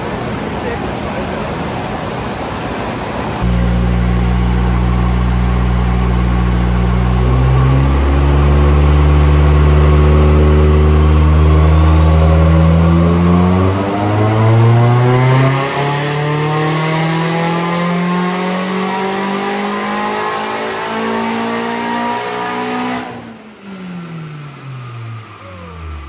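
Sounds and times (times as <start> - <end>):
engine revving at full throttle: 3.4 - 26.0
faint rising turbo whistle: 3.4 - 26.0.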